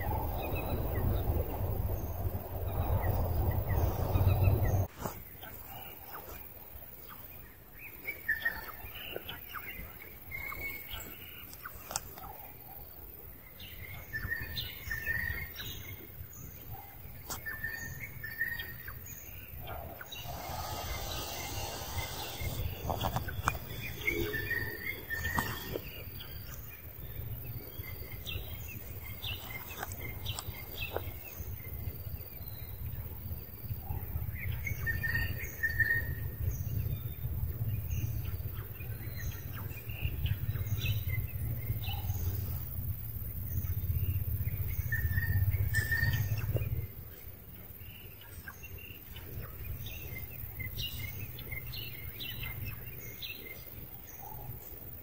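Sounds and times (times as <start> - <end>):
steady low rumble: 0.0 - 4.9
birds chirping: 0.0 - 33.1
rustling hiss: 20.0 - 26.2.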